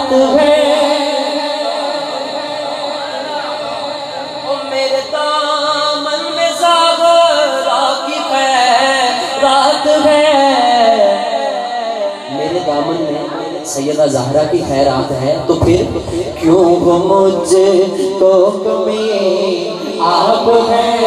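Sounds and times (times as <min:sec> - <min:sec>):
man singing melodic line: 0:14.9 - 0:21.0.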